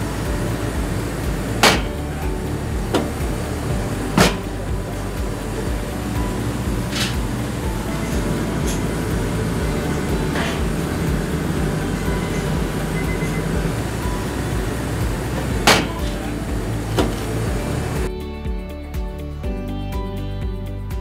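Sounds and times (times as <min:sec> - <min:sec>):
steamer venting steam roar: 0:00.0 - 0:18.1
sharp knocks: 0:00.8 - 0:02.0, 0:02.9 - 0:17.7.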